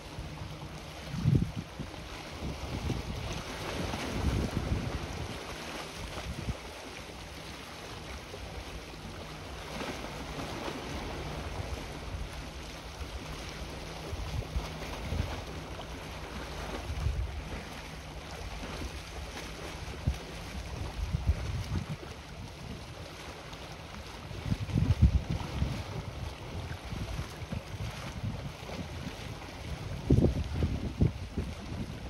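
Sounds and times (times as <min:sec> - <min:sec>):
sea washing: 0:00.0 - 0:32.0
wind on phone microphone: 0:01.0 - 0:05.4, 0:06.0 - 0:06.6, 0:19.9 - 0:22.9, 0:24.3 - 0:32.0.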